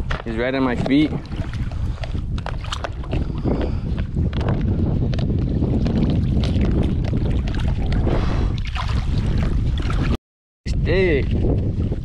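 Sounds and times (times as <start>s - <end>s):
wind buffeting microphone: 0.0s - 12.0s
water splashing: 0.4s - 3.9s, 5.2s - 10.2s.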